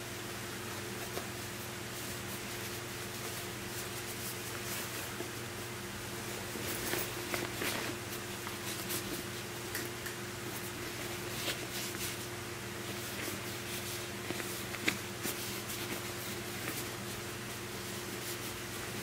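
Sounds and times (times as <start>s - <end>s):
steady low hum: 0.0s - 19.0s
fabric rustling: 6.2s - 9.4s, 10.5s - 19.0s.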